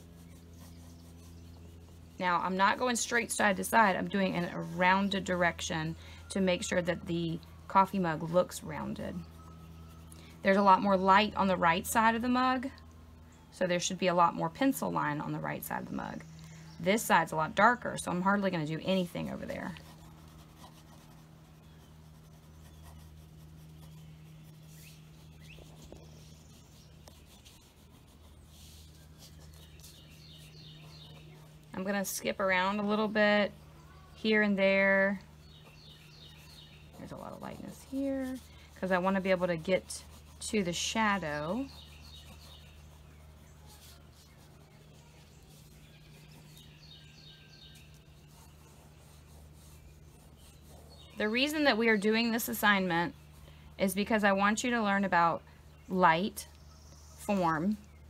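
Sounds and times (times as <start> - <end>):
pencil scratching on paper: 0.0 - 2.8, 18.6 - 31.6, 35.5 - 46.7, 47.6 - 53.3
steady low hum: 0.0 - 58.0
small bird chirping: 21.5 - 31.8, 35.2 - 58.0.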